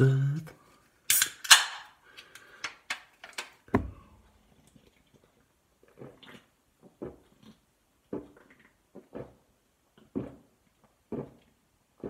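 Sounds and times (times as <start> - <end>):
dull knock: 3.7 - 4.0
person gulping drink: 3.9 - 12.0.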